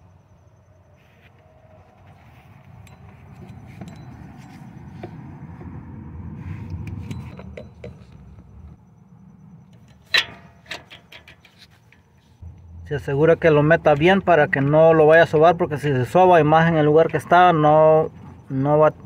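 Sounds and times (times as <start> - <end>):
metal socket clinking: 9.7 - 12.1
low rumble: 12.4 - 16.0.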